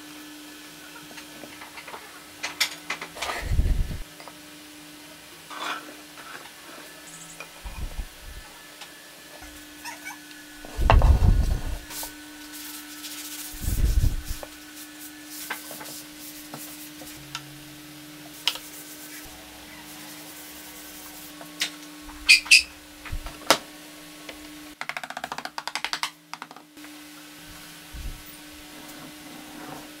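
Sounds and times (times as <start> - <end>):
steady low hum: 2.2 - 4.2, 6.6 - 24.8, 26.9 - 30.0.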